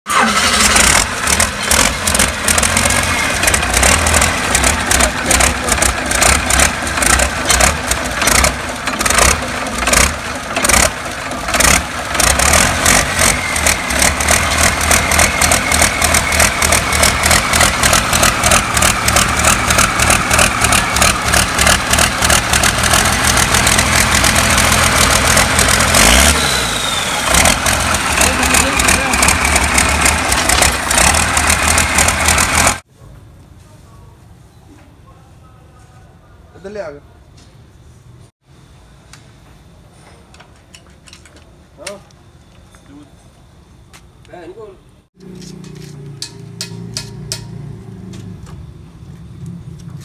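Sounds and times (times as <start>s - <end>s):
diesel engine running unevenly: 0.1s - 32.8s.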